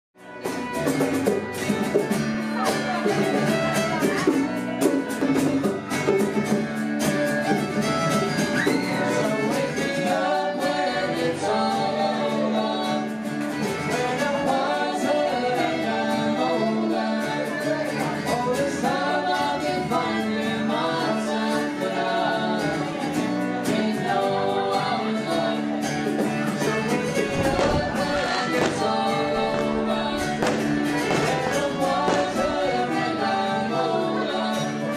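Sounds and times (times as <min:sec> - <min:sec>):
instrumental accompaniment: 0:00.2 - 0:34.9
person singing: 0:08.6 - 0:34.9.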